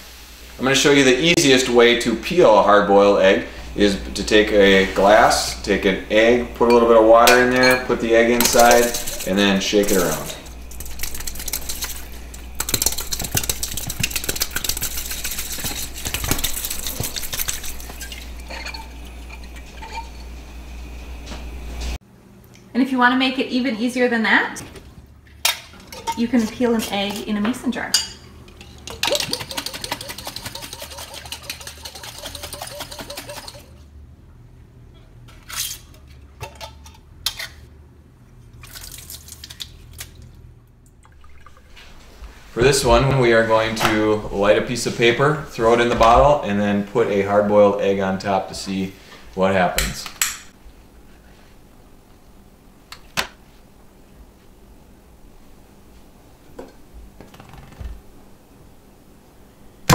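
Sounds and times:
egg rattling in a glass: 0:07.8 - 0:20.4, 0:28.6 - 0:33.7
water splashing into sink: 0:08.4 - 0:20.2, 0:28.9 - 0:33.6, 0:38.6 - 0:40.3, 0:41.0 - 0:42.1.

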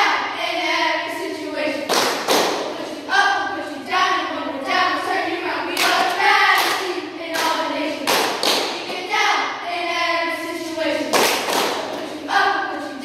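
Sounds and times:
girls chanting a cheer: 0:00.0 - 0:13.0
sharp hand claps: 0:01.9 - 0:02.8, 0:05.8 - 0:09.1, 0:11.1 - 0:12.1.

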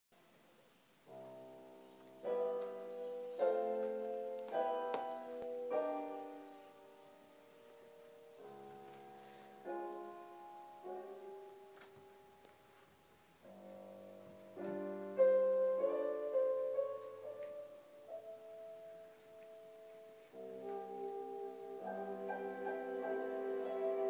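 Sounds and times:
piano chords: 0:00.2 - 0:24.0
sustained wind instrument: 0:20.2 - 0:24.0.

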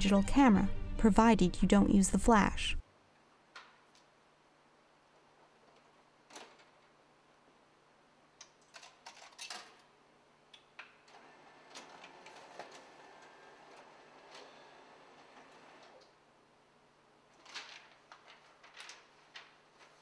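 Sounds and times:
photocopier running with ticking: 0:11.1 - 0:16.0.

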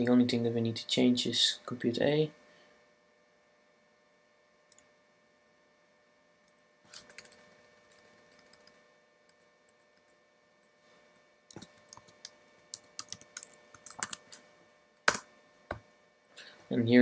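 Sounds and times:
typing on computer keyboard: 0:07.0 - 0:10.2, 0:11.5 - 0:14.2.

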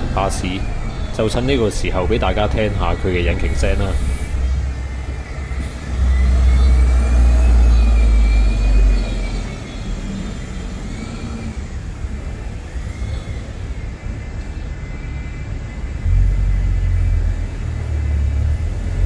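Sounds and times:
bus engine pulling away: 0:00.0 - 0:19.0
engine whine: 0:00.0 - 0:19.0.

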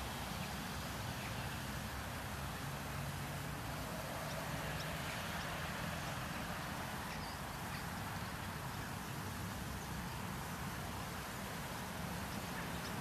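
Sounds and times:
distant road traffic rumble: 0:00.0 - 0:13.0
faint bird chirps: 0:07.0 - 0:09.2.

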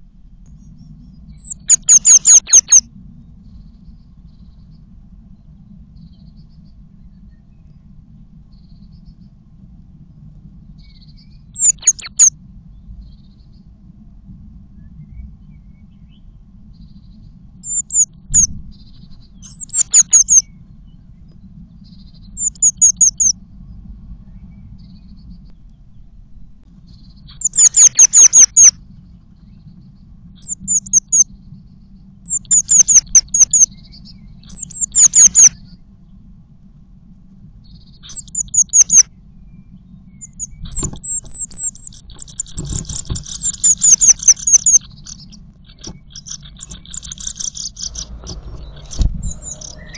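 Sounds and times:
bird calling high falling notes: 0:47.0 - 0:49.9.

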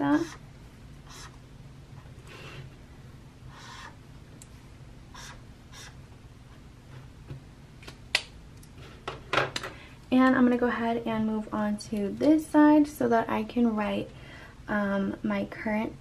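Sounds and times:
highlighter scratching on paper: 0:00.0 - 0:00.4, 0:01.0 - 0:01.4, 0:03.5 - 0:04.0, 0:05.1 - 0:06.6.

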